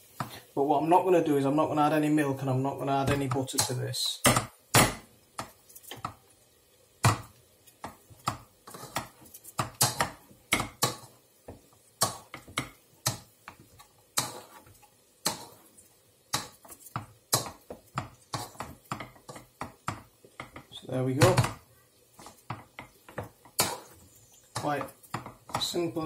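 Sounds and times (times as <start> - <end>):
potato masher knocking metal pan: 7.0 - 11.1, 16.3 - 21.6, 22.2 - 26.0.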